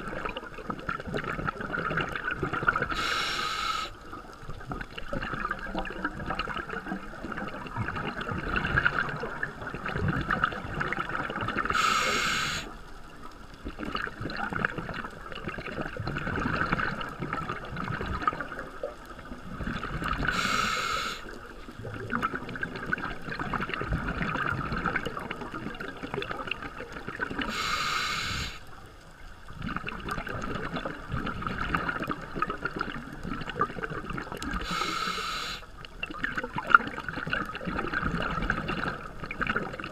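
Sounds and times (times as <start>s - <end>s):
underwater bubbling and gurgling: 0.0s - 39.9s
regulator hissing breath: 2.9s - 4.0s, 11.7s - 12.8s, 20.3s - 21.3s, 27.5s - 28.7s, 34.6s - 35.7s.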